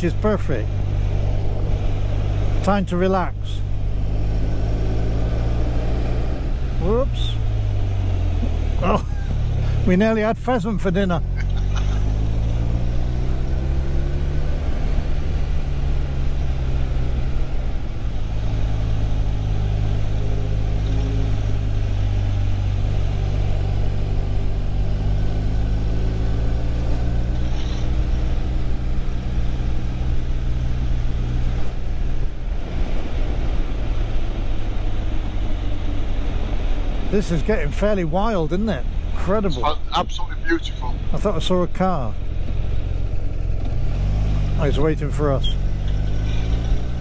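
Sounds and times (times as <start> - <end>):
road noise: 0.0 - 47.0
motorcycle engine running: 11.2 - 31.2.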